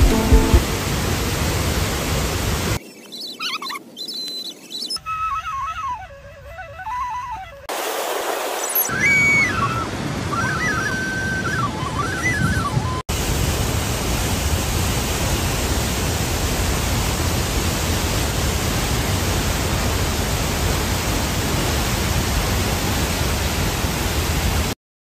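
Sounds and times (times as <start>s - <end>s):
waterfall rushing: 0.0s - 2.8s, 13.1s - 24.8s.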